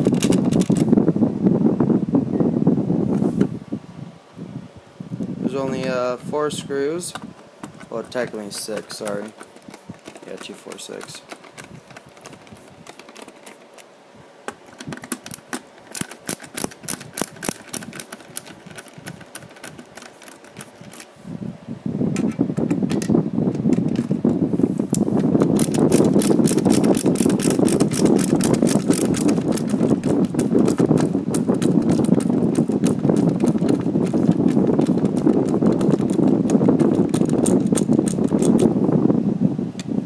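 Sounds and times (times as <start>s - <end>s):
screwdriver clicking: 7.1s - 13.9s, 14.5s - 21.1s, 25.4s - 38.7s
rough grinding and rubbing: 7.6s - 13.8s, 23.8s - 38.5s.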